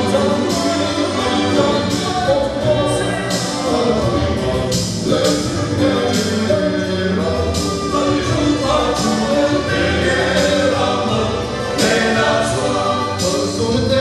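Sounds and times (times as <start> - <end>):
male choir singing a hymn: 0.0 - 14.0.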